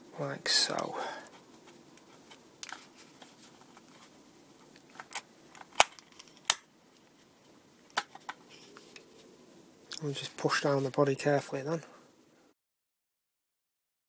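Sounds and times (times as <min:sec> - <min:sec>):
plastic clicks and snaps: 0:04.6 - 0:06.7.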